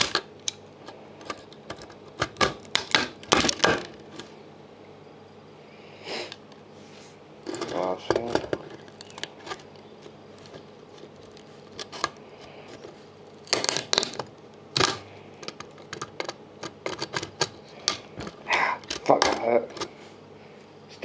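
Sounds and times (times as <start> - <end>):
components cracking off circuit board: 0.0 - 4.3, 7.4 - 19.9.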